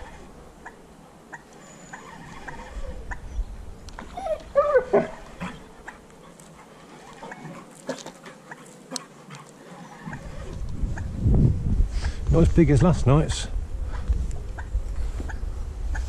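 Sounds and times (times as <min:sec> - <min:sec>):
dog whining: 0:01.4 - 0:09.0, 0:09.6 - 0:10.6.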